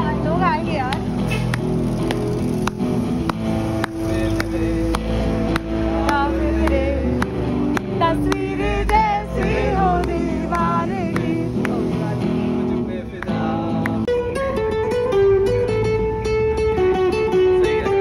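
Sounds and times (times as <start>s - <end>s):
acoustic guitar strumming: 0.0s - 18.0s
street traffic rumble: 0.0s - 18.0s
man singing with vibrato: 3.9s - 7.2s, 8.0s - 14.1s.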